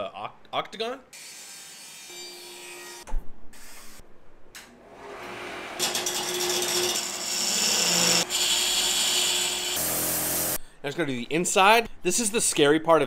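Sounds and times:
shop machine noise: 4.8 - 10.6.

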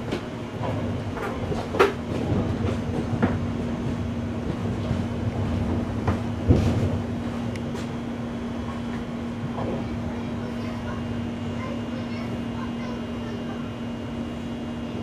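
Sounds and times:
train wheels knocking: 0.0 - 7.9
train rumbling: 0.0 - 15.0.

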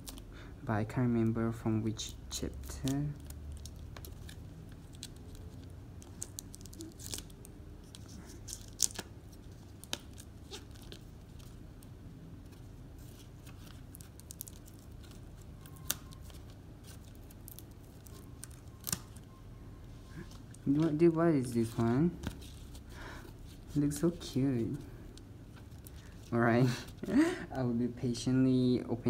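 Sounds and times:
paper and plastic tearing: 2.6 - 11.5.

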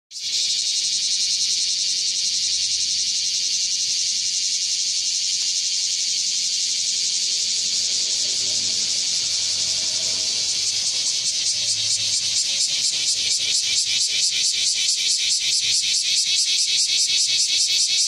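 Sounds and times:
cicadas buzzing: 0.1 - 18.0.

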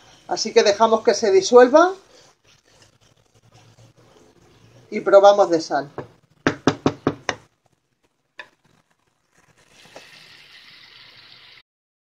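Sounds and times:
sauce sizzling in a pan: 0.0 - 4.8, 7.4 - 11.6
utensil knocking on pan: 6.0 - 7.5.

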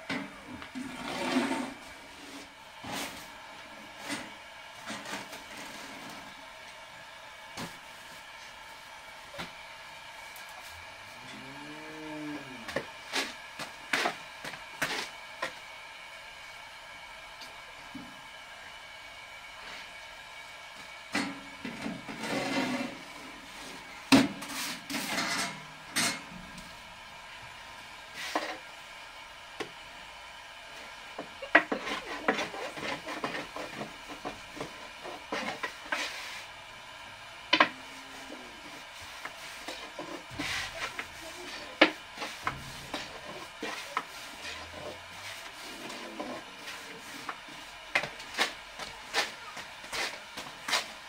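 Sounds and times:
objects scraping: 0.7 - 3.2, 21.7 - 26.3.

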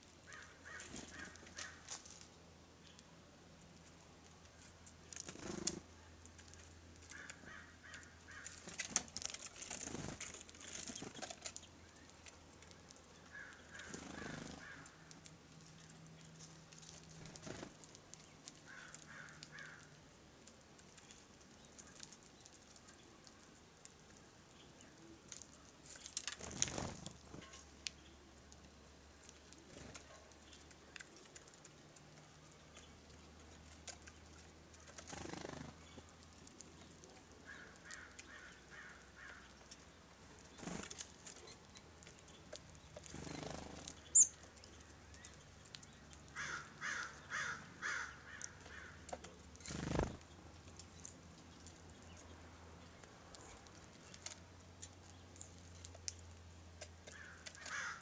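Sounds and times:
harsh repeated bird calls: 0.3 - 1.9, 13.2 - 15.1, 18.6 - 20.0, 37.4 - 39.6, 43.1 - 44.5, 46.2 - 49.1, 57.1 - 58.0
bird wings fluttering: 26.2 - 27.4, 34.9 - 35.7, 49.6 - 50.2.

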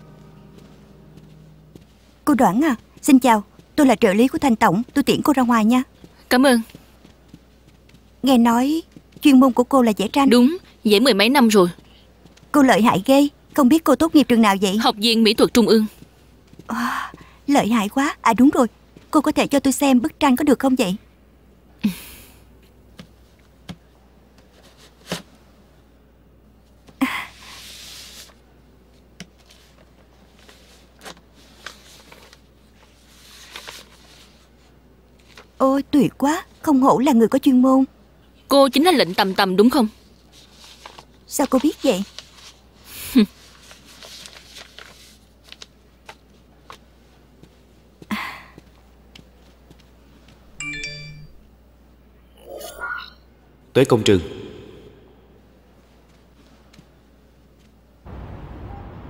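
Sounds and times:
paper rustling: 29.4 - 35.5, 40.2 - 42.6, 43.2 - 46.9
phone notification chime: 50.6 - 51.4.

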